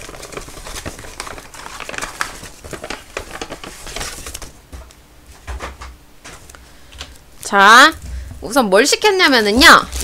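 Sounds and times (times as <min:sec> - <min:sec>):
paper bag rustling and crinkling: 0:00.0 - 0:04.9, 0:09.0 - 0:10.0.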